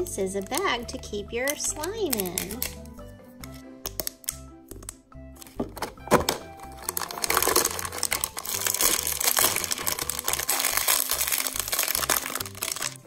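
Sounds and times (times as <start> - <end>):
foil wrapper crinkling: 1.5 - 2.9, 6.5 - 13.0.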